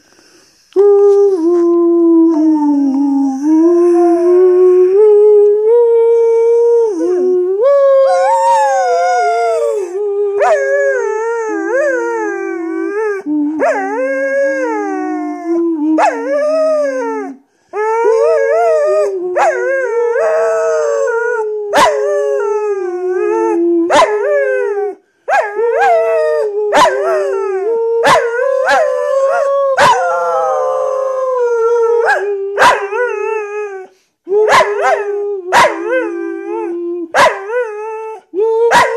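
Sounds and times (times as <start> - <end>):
man humming: 0.7 - 24.8, 25.6 - 33.5, 34.3 - 37.2, 38.2 - 38.9
dog howling: 6.4 - 33.9.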